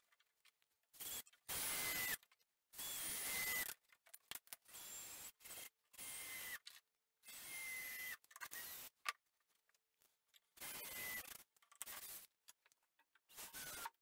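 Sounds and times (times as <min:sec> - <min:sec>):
cordless drill driving screws: 0:01.0 - 0:02.2, 0:02.8 - 0:03.8, 0:04.6 - 0:08.9, 0:10.6 - 0:12.3, 0:13.3 - 0:14.0.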